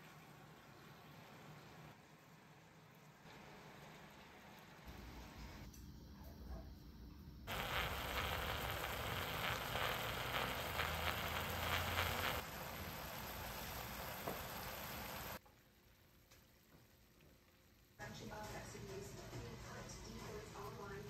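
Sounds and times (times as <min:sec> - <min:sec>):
food sizzling in a pot: 0:07.5 - 0:21.0.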